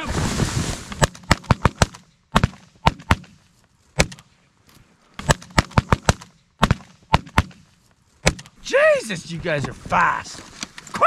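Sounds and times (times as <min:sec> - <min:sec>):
shotgun fire: 0:05.2 - 0:07.6.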